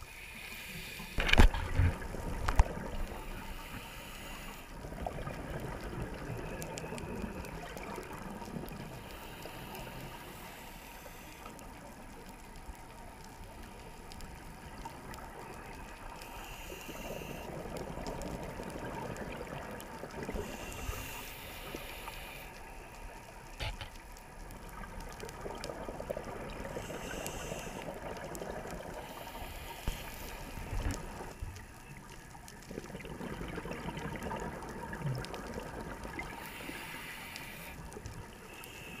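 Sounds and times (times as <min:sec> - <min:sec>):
diver breathing through regulator: 0:00.0 - 0:01.5, 0:03.0 - 0:04.8, 0:08.8 - 0:11.6, 0:16.2 - 0:17.6, 0:20.3 - 0:22.6, 0:26.6 - 0:28.1, 0:28.9 - 0:30.9, 0:36.2 - 0:39.0
low water rumble: 0:00.8 - 0:39.0.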